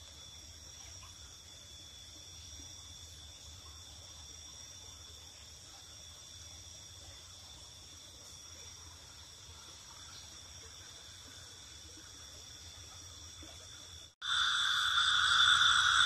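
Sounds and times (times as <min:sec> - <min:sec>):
night insects trilling: 0:00.0 - 0:16.0
continuous high tones: 0:14.2 - 0:16.0.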